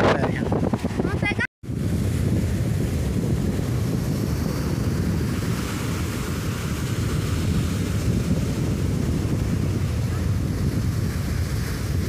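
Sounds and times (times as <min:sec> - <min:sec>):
ocean surf breaking on beach: 0:00.0 - 0:12.0
wind buffeting microphone: 0:00.0 - 0:12.0.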